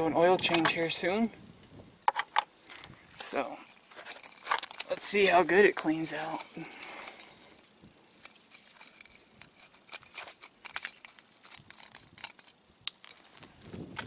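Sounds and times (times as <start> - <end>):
plastic cap clicks and crackles: 8.2 - 14.0.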